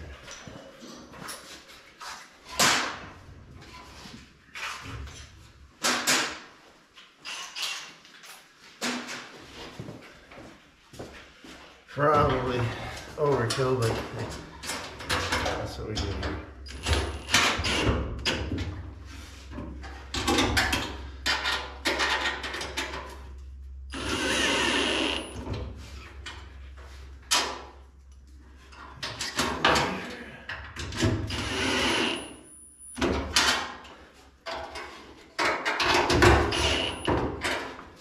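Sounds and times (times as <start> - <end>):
power drill running: 23.9 - 25.5, 31.3 - 32.4.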